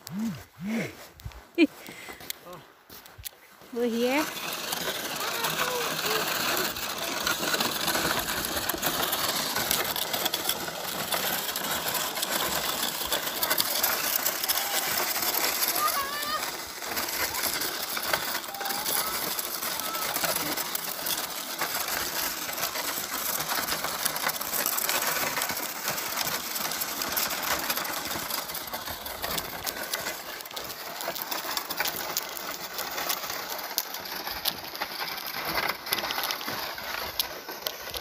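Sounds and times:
footsteps crunching on snow: 0:00.0 - 0:05.1.

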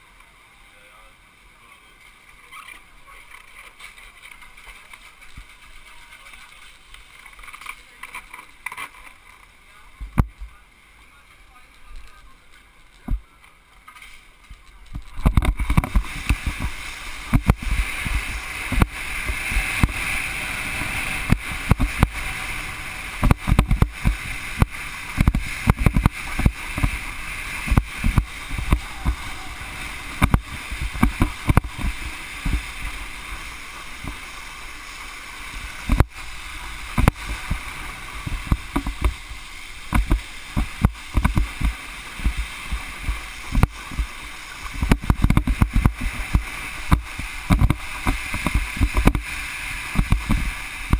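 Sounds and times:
low thumps and buffets: 0:14.8 - 0:34.4, 0:35.5 - 0:50.9
hiss of water spray: 0:14.9 - 0:50.9.

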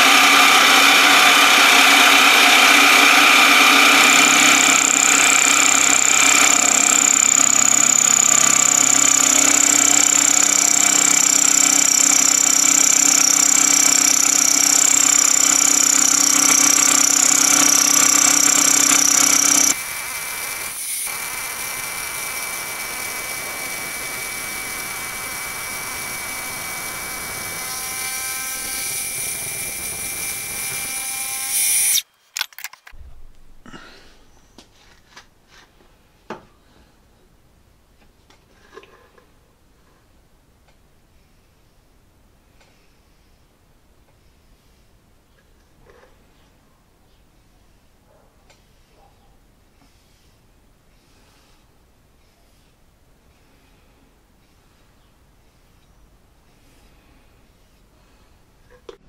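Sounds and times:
high machining whine: 0:00.0 - 0:32.0
milling machine cutting metal: 0:00.0 - 0:32.5.

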